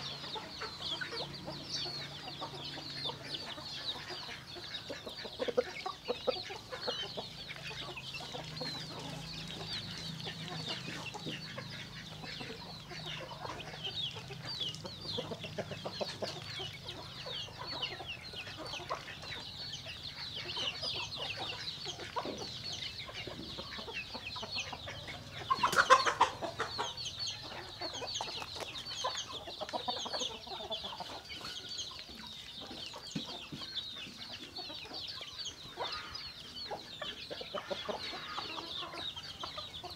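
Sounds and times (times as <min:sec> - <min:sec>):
chickens clucking and peeping: 0:00.0 - 0:39.9.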